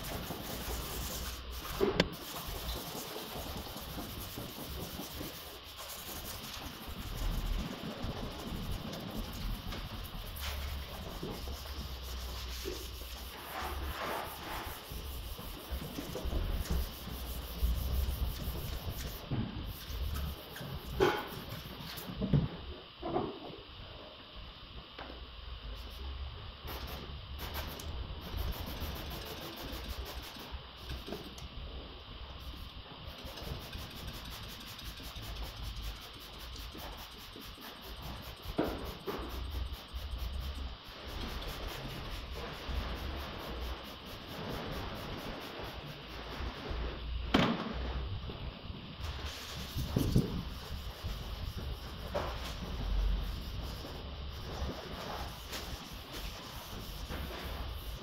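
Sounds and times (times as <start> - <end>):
sanding pad scrubbing a panel: 0.0 - 22.1, 27.4 - 31.3, 32.6 - 46.8, 49.1 - 58.0
spray bottle spritz: 0.0 - 22.1, 26.7 - 31.3, 32.4 - 45.9, 49.0 - 58.0
rubbing and scuffing: 0.0 - 22.2, 49.0 - 58.0
low steady hum: 0.0 - 58.0.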